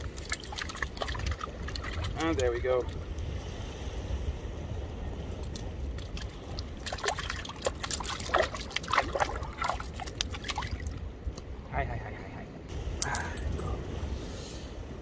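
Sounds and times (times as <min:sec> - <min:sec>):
water lapping among rocks: 0:00.0 - 0:02.5, 0:06.0 - 0:11.1
small splashes and clicks: 0:00.0 - 0:03.3, 0:05.4 - 0:11.5
wind rumble on microphone: 0:00.0 - 0:15.0.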